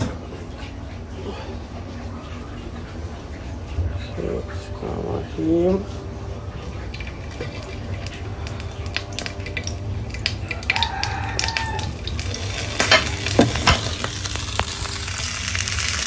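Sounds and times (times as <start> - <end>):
sausages sizzling in a frying pan: 6.8 - 16.0
rooster crowing: 10.4 - 12.7
cookware clattering: 12.8 - 14.1.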